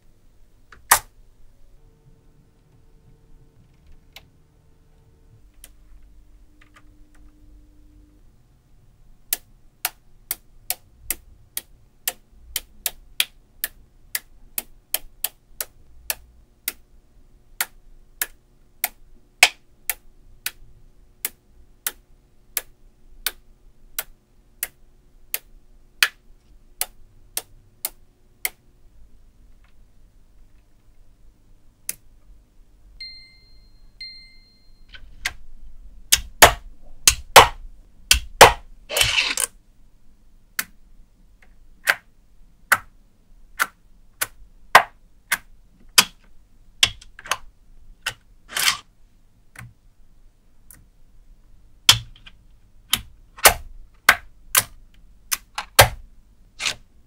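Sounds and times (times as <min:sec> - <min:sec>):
magnetic balls clicking together: 0:42.7 - 0:42.9, 0:51.9 - 0:56.0.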